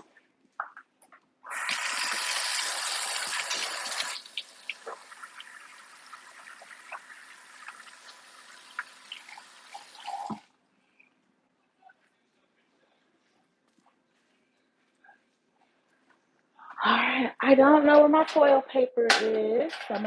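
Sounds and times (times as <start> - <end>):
hands washing with splashes: 1.5 - 10.4
tap water running: 1.5 - 10.5.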